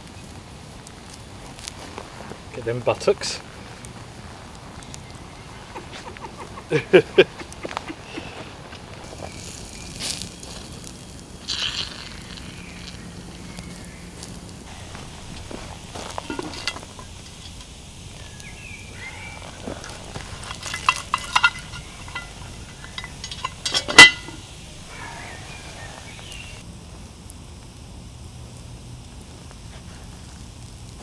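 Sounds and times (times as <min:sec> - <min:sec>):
frying pan clanking: 0:14.7 - 0:26.2
light metal clinks: 0:14.7 - 0:26.6.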